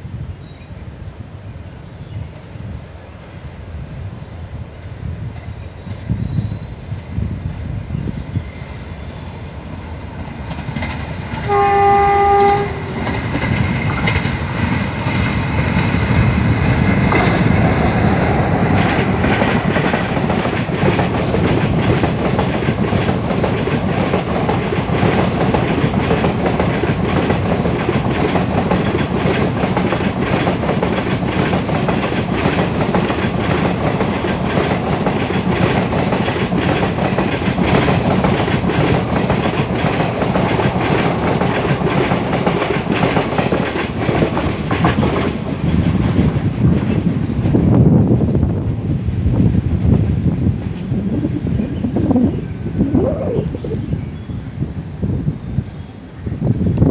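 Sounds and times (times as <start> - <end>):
train rumbling past: 0.0 - 56.9
wheels clattering on rails: 10.0 - 48.2
train horn chord: 11.5 - 13.1.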